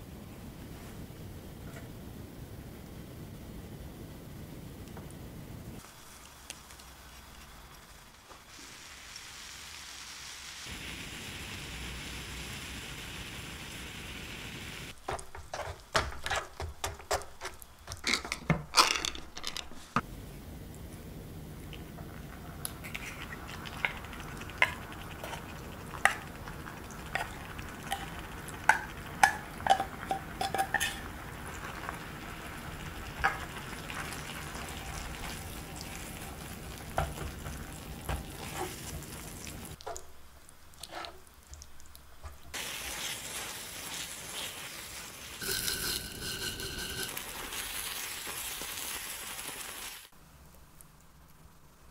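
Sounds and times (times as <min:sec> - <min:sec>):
sauce sizzling in a saucepan: 0:05.7 - 0:17.0, 0:21.3 - 0:50.2
spoon knocking: 0:27.2 - 0:31.1, 0:45.4 - 0:47.2
spatula scraping a pan: 0:40.8 - 0:41.3, 0:45.4 - 0:47.6.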